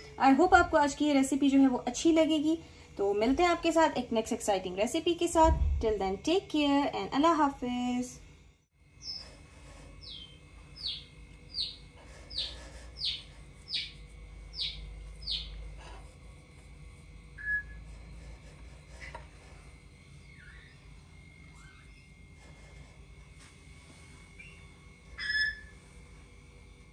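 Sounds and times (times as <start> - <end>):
bird chirping: 9.0 - 9.2, 10.0 - 15.6, 25.2 - 25.7.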